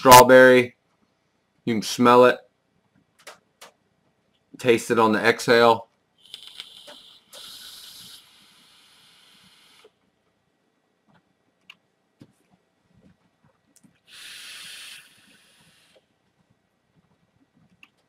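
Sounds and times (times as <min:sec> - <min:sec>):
vape exhale hiss: 0:06.2 - 0:10.0, 0:14.0 - 0:16.1.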